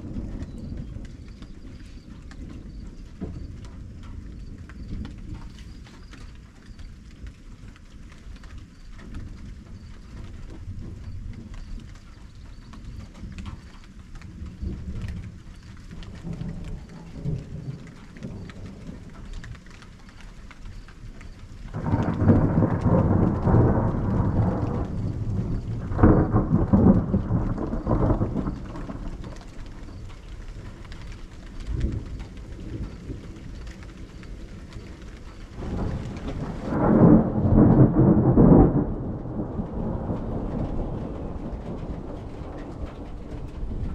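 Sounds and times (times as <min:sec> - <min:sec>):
thunder rumbling: 0:00.0 - 0:43.9
loud thunder peals: 0:21.7 - 0:30.7, 0:35.4 - 0:43.9.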